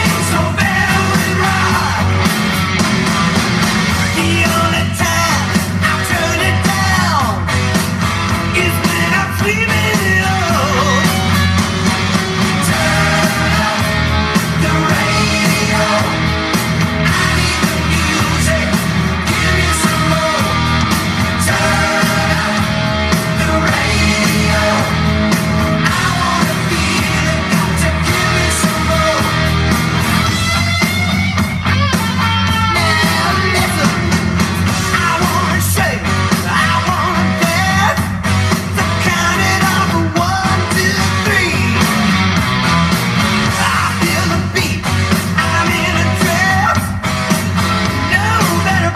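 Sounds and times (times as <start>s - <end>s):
rock song with singing: 0.0s - 48.9s.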